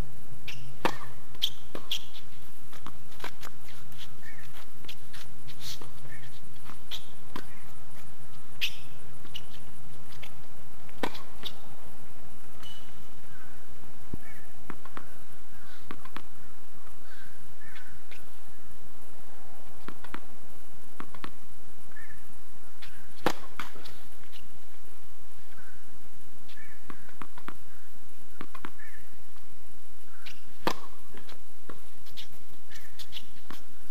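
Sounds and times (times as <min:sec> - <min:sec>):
racket striking ball: 0:00.5 - 0:02.1, 0:10.9 - 0:11.6, 0:23.2 - 0:24.0, 0:30.6 - 0:31.8
tennis ball bouncing on court: 0:00.5 - 0:03.6, 0:06.6 - 0:11.6, 0:14.6 - 0:15.1, 0:15.8 - 0:16.3, 0:19.8 - 0:20.3, 0:21.0 - 0:21.4, 0:23.2 - 0:24.4, 0:26.8 - 0:27.6, 0:28.4 - 0:28.8, 0:30.2 - 0:32.3
faint bird calls: 0:04.2 - 0:04.6, 0:06.0 - 0:07.8, 0:12.6 - 0:18.8, 0:21.9 - 0:24.5, 0:25.4 - 0:29.2, 0:30.0 - 0:31.4, 0:32.1 - 0:33.4.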